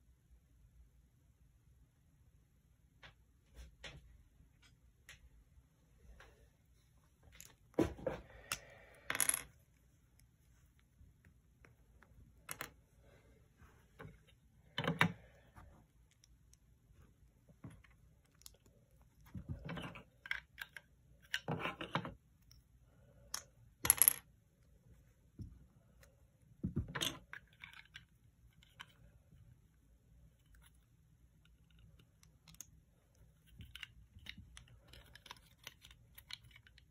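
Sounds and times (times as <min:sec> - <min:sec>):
plastic bricks clicking and clattering: 0:33.3 - 0:36.9.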